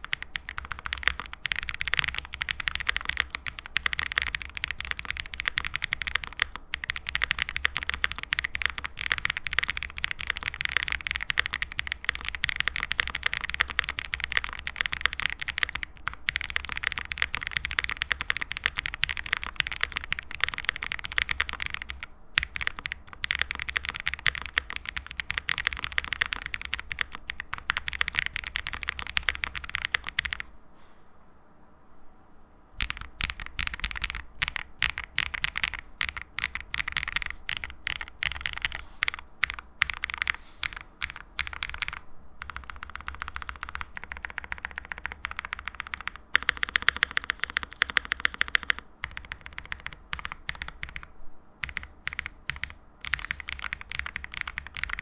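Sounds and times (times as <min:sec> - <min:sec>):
mechanical keyboard typing: 0:00.0 - 0:30.5, 0:32.8 - 0:55.0.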